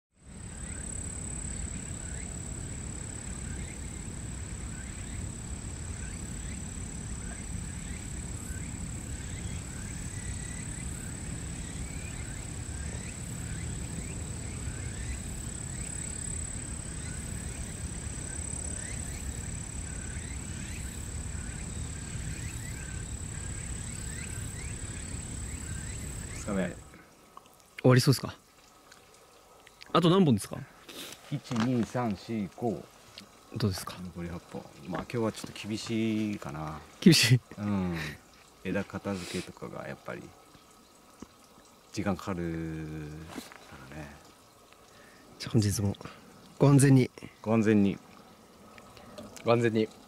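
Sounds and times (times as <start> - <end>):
steady low rumble: 0.2 - 26.9
high-pitched whine: 0.2 - 27.0
birds chirping: 0.3 - 27.0.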